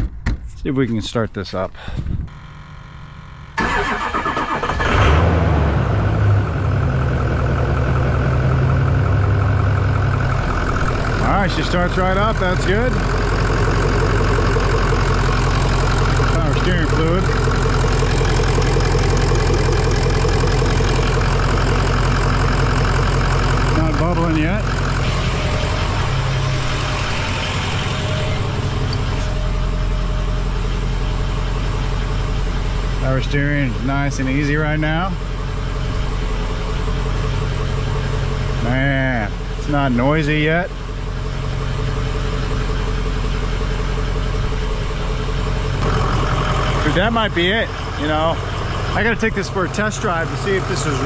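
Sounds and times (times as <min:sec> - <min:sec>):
diesel engine idling: 0:01.8 - 0:51.0
diesel engine cranking: 0:03.5 - 0:51.0.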